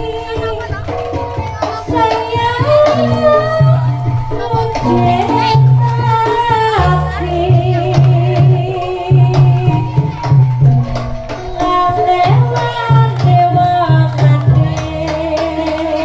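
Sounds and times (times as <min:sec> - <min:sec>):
hand drum strokes: 0:00.0 - 0:16.0.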